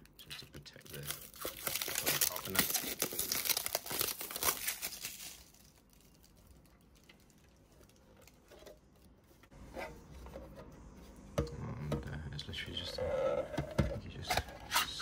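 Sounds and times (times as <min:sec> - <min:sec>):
plastic film crinkling: 0:00.2 - 0:09.2.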